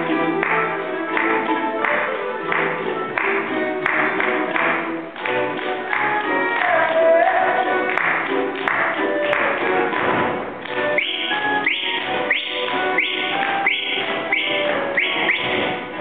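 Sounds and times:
dancers' feet stamping: 0:00.0 - 0:16.0
folk band playing dance tune: 0:00.0 - 0:16.0
rising whistle: 0:11.0 - 0:15.6.

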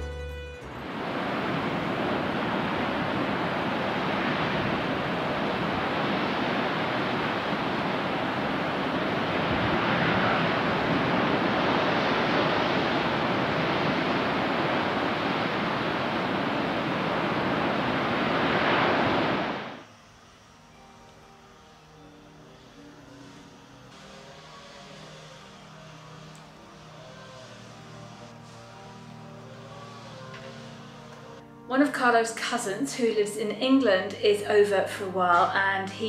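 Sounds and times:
waves breaking on beach: 0:00.7 - 0:19.8.

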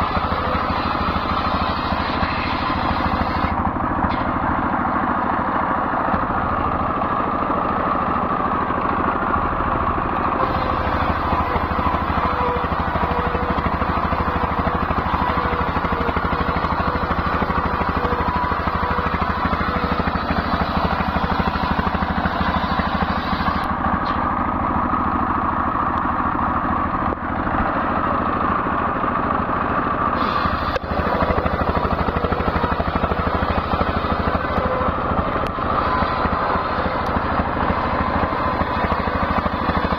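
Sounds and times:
circular saw cutting wood: 0:00.0 - 0:04.3, 0:10.4 - 0:24.2, 0:30.2 - 0:39.9
diesel engine running: 0:00.0 - 0:39.9.

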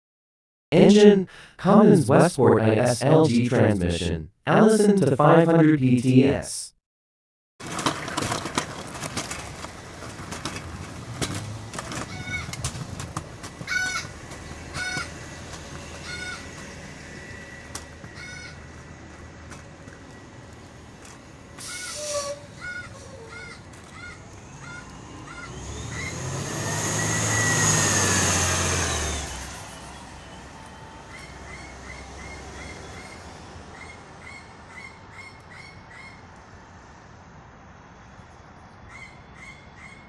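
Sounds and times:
bus engine running: 0:08.0 - 0:33.7.

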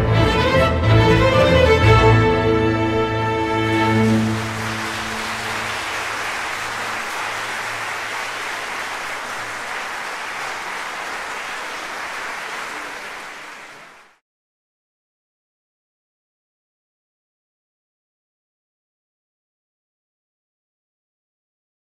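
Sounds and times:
orchestra final chord: 0:03.3 - 0:07.4
audience applauding: 0:03.5 - 0:14.2.

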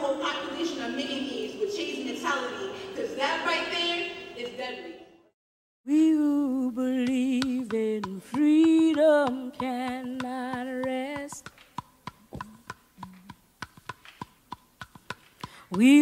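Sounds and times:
person singing long held notes: 0:05.9 - 0:11.2.

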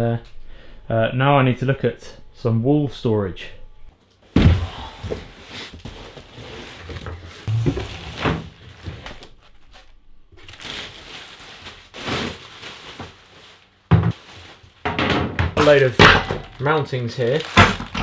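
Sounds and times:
cardboard and plastic rustling: 0:04.4 - 0:15.0, 0:15.6 - 0:18.0
plastic sheeting crinkling: 0:05.4 - 0:14.8, 0:15.6 - 0:18.0.

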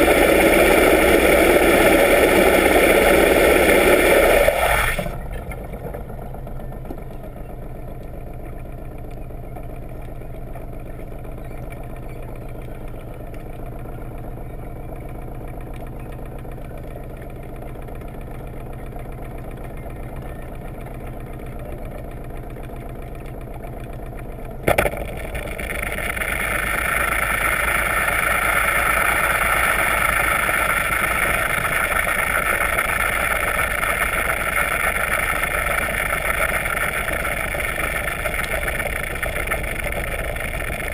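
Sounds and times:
high rushing noise: 0:00.0 - 0:05.2
underwater engine hum: 0:00.0 - 0:40.9.

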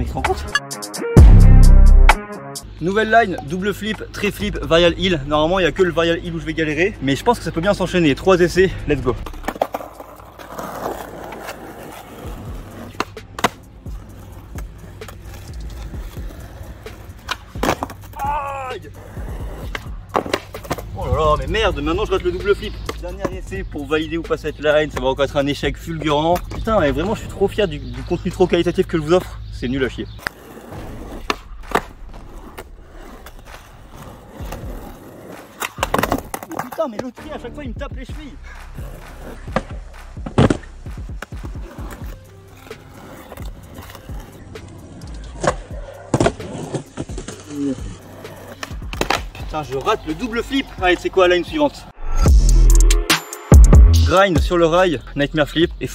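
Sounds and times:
skateboard wheels rumbling on asphalt: 0:03.4 - 0:51.7
skateboard clacks: 0:09.2 - 0:18.3, 0:19.0 - 0:21.0, 0:30.2 - 0:50.2.

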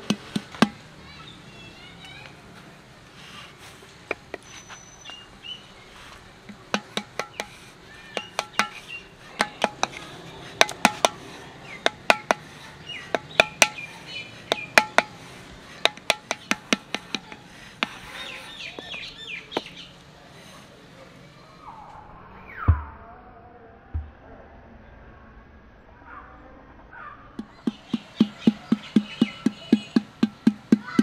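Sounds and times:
paddle knocking clay pot: 0:00.0 - 0:00.8, 0:06.5 - 0:11.2, 0:11.8 - 0:13.9, 0:14.5 - 0:15.2, 0:15.8 - 0:18.1, 0:27.4 - 0:31.0
birds chirping: 0:00.0 - 0:31.0.

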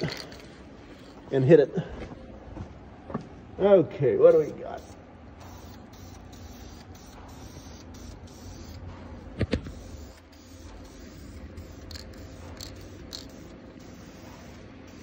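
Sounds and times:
aerosol can spraying: 0:04.3 - 0:08.8, 0:09.4 - 0:15.0.

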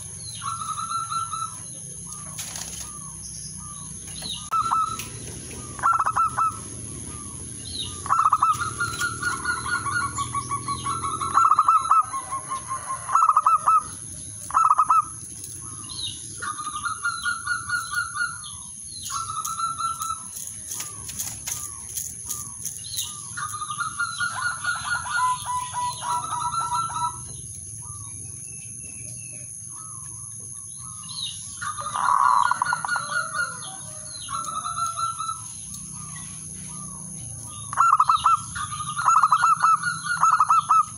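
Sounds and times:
dove cooing trill: 0:00.0 - 0:28.2, 0:30.8 - 0:40.9
wings fluttering: 0:02.1 - 0:03.2, 0:08.1 - 0:10.2, 0:19.1 - 0:24.1.

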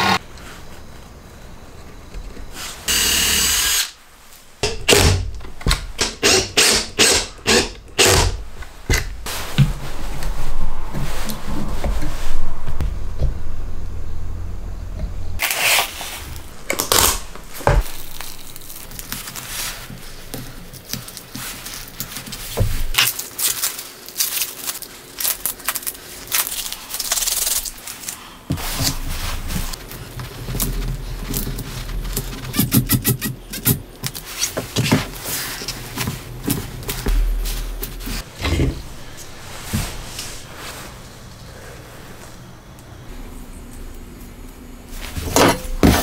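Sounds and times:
low steady hum: 0:07.8 - 0:23.2, 0:24.1 - 0:46.0
scrapes and crinkles of materials: 0:15.4 - 0:42.4.

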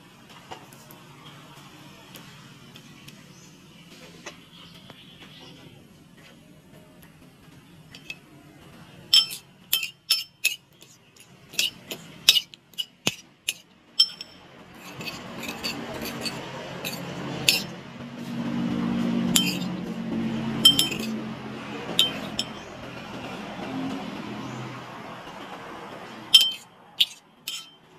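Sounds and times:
metal spoon clinking against bowl: 0:09.1 - 0:17.8, 0:19.3 - 0:19.7, 0:20.6 - 0:21.2, 0:21.9 - 0:22.7, 0:26.3 - 0:27.8
eggs being stirred: 0:09.2 - 0:17.8, 0:19.2 - 0:19.7, 0:20.4 - 0:23.8, 0:26.3 - 0:27.8.

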